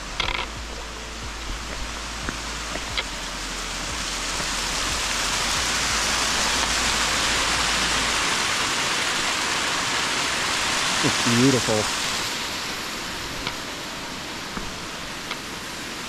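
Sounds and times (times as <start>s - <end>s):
waterfall and brook rushing: 0.0s - 16.0s.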